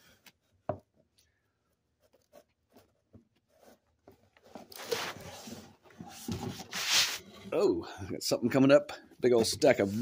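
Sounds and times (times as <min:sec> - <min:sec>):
paper rustling: 0:02.1 - 0:07.4
paper sliding: 0:06.2 - 0:07.4.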